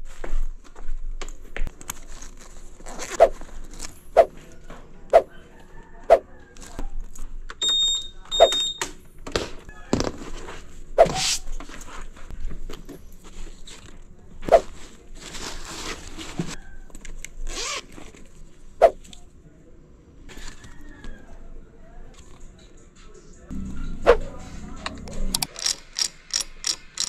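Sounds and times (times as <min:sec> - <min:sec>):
cloth and plastic bags rustling: 0:00.0 - 0:04.6, 0:10.0 - 0:16.6
short electronic beeps: 0:07.6 - 0:08.9.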